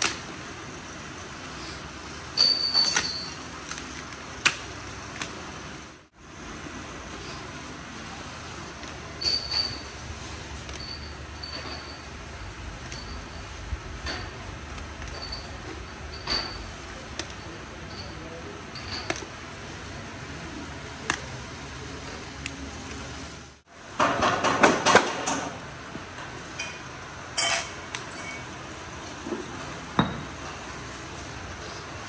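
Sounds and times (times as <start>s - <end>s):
metallic clinks and knocks: 2.4s - 3.5s, 8.9s - 19.4s, 26.6s - 28.6s.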